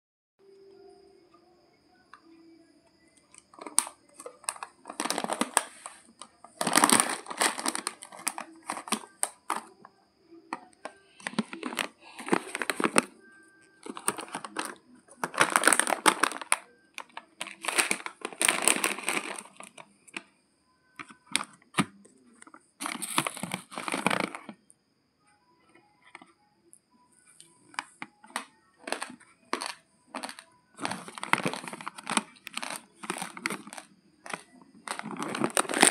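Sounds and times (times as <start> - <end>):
plastic bag crinkling: 3.4 - 9.7, 10.5 - 13.2, 13.8 - 20.3, 22.8 - 24.6, 27.7 - 35.9.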